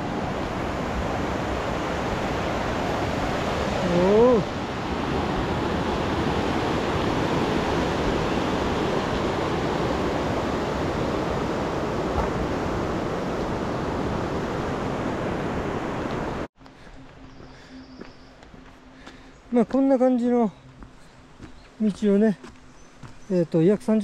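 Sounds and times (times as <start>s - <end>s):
creek water rushing: 0.0s - 17.7s.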